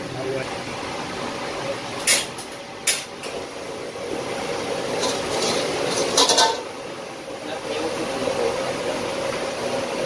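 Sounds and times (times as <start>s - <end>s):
gas wok range roaring: 0.0s - 10.0s.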